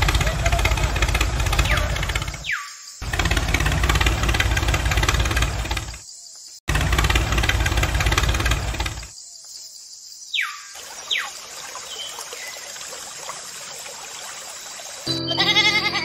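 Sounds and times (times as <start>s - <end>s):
truck engine idling with knocking: 0.0s - 6.0s, 6.7s - 9.1s.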